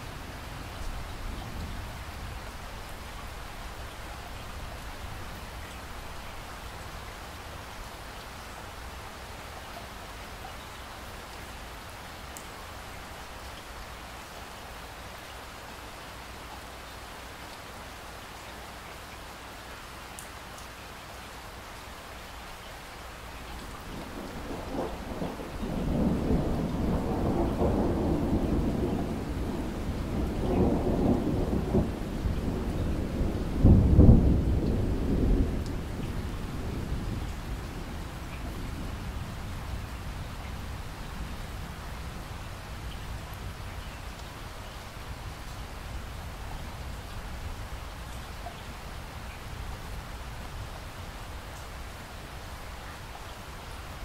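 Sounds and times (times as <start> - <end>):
steady rain falling: 0.0 - 54.0
rolling thunder rumble: 23.8 - 42.4.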